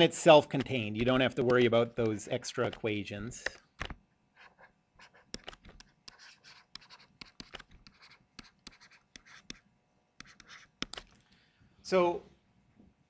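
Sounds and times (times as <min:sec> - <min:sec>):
stylus writing on tablet screen: 0:00.1 - 0:03.4, 0:04.4 - 0:11.1.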